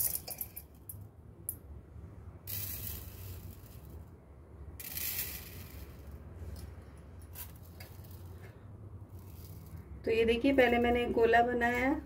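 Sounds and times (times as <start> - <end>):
rice grains hissing onto steel plate: 2.5 - 3.9, 4.8 - 5.9.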